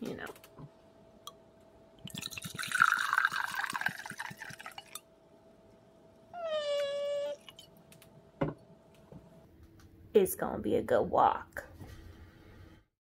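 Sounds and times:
wine pouring into metal tumbler: 0:02.1 - 0:05.0
cat meowing: 0:06.4 - 0:07.5.

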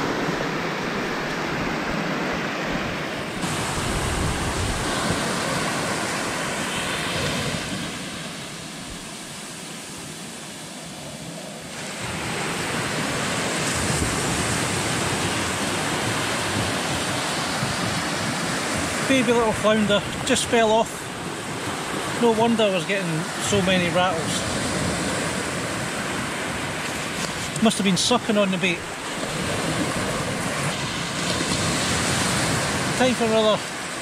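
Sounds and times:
small surf washing on sand: 0:00.0 - 0:34.0.

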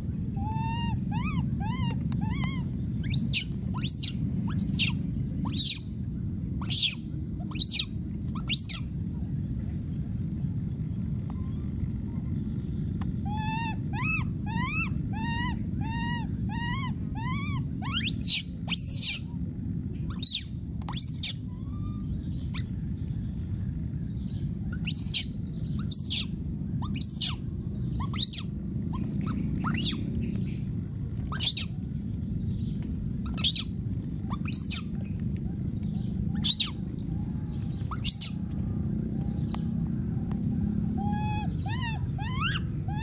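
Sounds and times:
low background rumble: 0:00.0 - 0:43.0
baby monkey cooing: 0:00.4 - 0:05.8, 0:06.6 - 0:08.8, 0:13.2 - 0:19.2, 0:20.1 - 0:22.7, 0:24.7 - 0:27.4, 0:28.0 - 0:30.0, 0:31.3 - 0:31.7, 0:33.2 - 0:33.7, 0:34.3 - 0:36.9, 0:37.8 - 0:38.4, 0:41.0 - 0:43.0
baby monkey screaming: 0:00.4 - 0:05.9, 0:06.6 - 0:08.9, 0:13.2 - 0:19.3, 0:20.1 - 0:22.7, 0:24.6 - 0:30.1, 0:31.3 - 0:31.8, 0:33.2 - 0:35.0, 0:36.0 - 0:38.4, 0:40.9 - 0:43.0.

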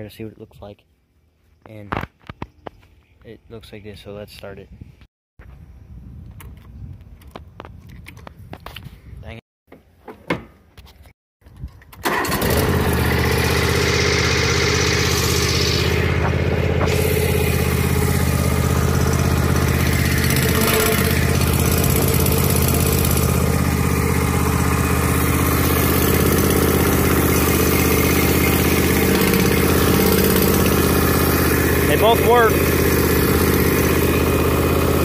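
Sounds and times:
riding mower engine running: 0:12.0 - 0:35.0.

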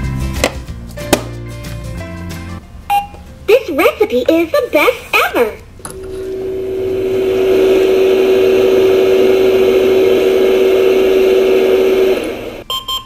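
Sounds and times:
toy oven electronic hum and hiss: 0:05.9 - 0:12.7.

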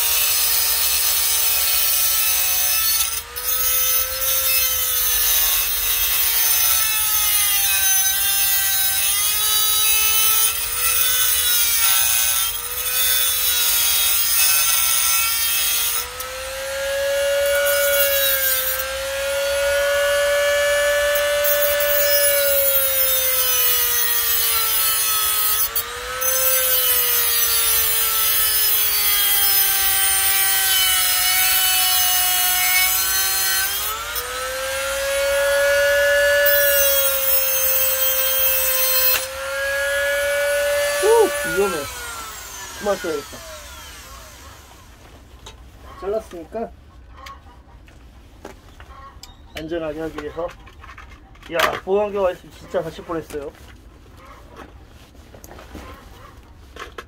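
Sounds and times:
mini grinder cutting plastic: 0:00.0 - 0:45.6.

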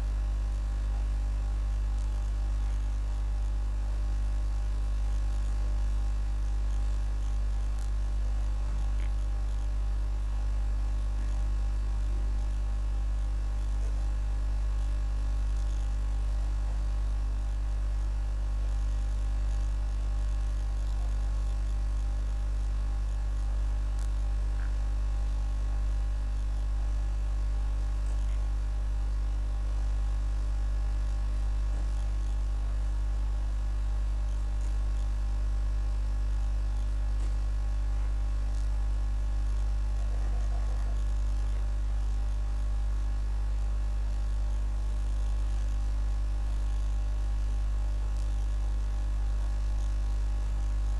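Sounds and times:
electrical mains hum: 0:00.0 - 0:50.9.

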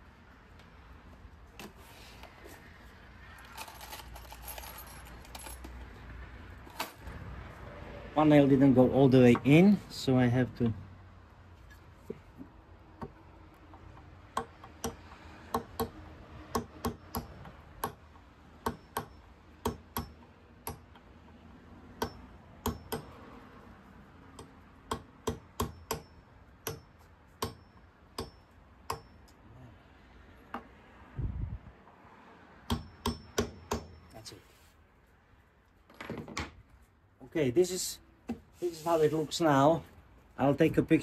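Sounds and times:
hammer striking nail: 0:14.4 - 0:18.0, 0:18.6 - 0:20.9, 0:22.0 - 0:23.1, 0:24.9 - 0:29.1, 0:32.7 - 0:34.0.

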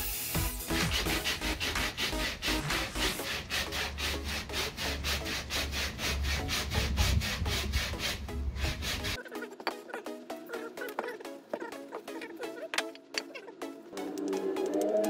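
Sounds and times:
background music: 0:00.0 - 0:15.0
hand tool rasping on wood: 0:00.7 - 0:09.5.

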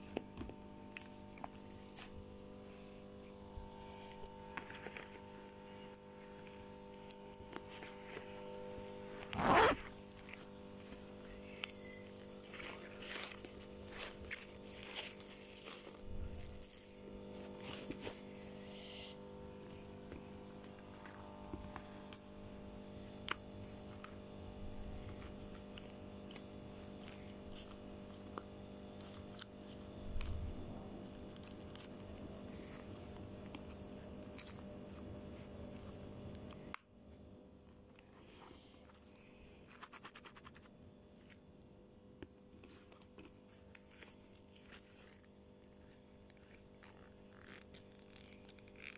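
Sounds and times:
scraping and rustling of items: 0:00.0 - 0:18.4, 0:42.4 - 0:48.9
steady low hum: 0:00.0 - 0:48.9
zipper pulled quickly: 0:09.2 - 0:10.0.

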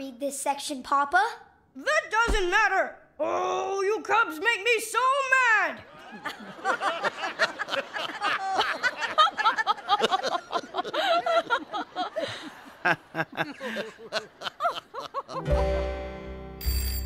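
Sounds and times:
audience laughing: 0:05.8 - 0:15.7.

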